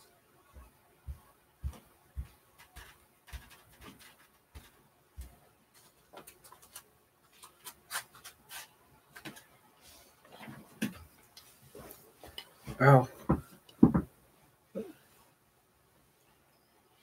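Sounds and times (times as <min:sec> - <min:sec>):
bare feet on floor: 0:00.5 - 0:06.6, 0:10.3 - 0:14.1.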